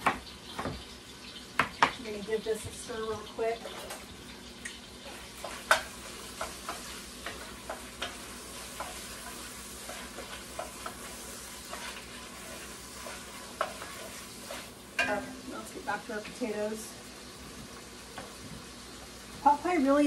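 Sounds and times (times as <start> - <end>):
chicken sizzling in a pot: 0.0 - 20.0
utensil scraping pot: 5.0 - 15.3.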